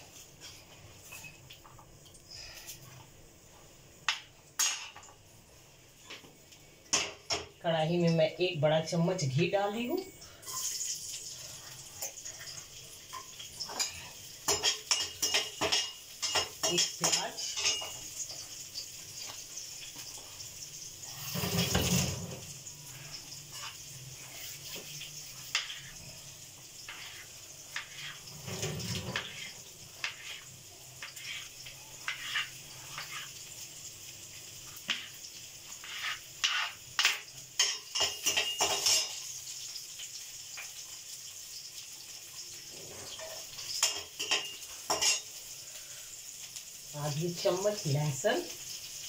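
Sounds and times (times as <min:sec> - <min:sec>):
metal spatula clattering in pan: 0:13.1 - 0:18.1, 0:35.8 - 0:39.2, 0:43.1 - 0:45.3.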